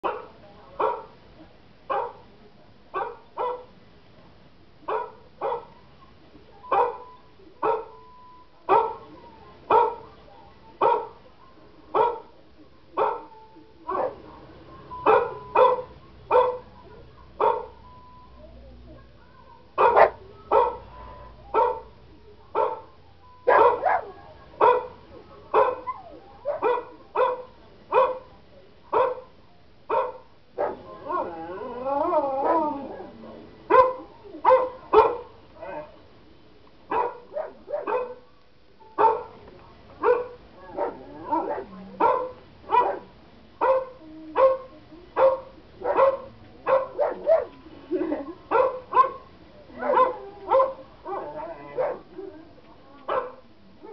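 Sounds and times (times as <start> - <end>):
dog barking: 0.0 - 1.1, 1.9 - 2.2, 3.0 - 3.7, 4.9 - 5.8, 6.7 - 8.0, 8.7 - 9.0, 9.7 - 10.1, 10.8 - 11.2, 12.0 - 12.3, 13.0 - 13.3, 15.1 - 16.7, 17.4 - 17.8, 19.8 - 20.8, 21.6 - 21.9, 22.6 - 28.3, 29.0 - 29.3, 29.9 - 30.8, 33.7 - 35.9, 36.9 - 38.2, 39.0 - 39.4, 40.0 - 47.6, 48.5 - 52.2, 53.1 - 53.9
recorded dog barking: 0.0 - 1.2, 1.9 - 2.2, 2.9 - 3.7, 4.8 - 5.8, 6.6 - 8.0, 8.7 - 10.2, 10.8 - 11.2, 11.9 - 16.8, 17.4 - 17.8, 19.8 - 31.4, 33.7 - 36.0, 36.9 - 38.3, 39.0 - 39.4, 40.0 - 47.6, 48.5 - 52.4, 53.0 - 53.9.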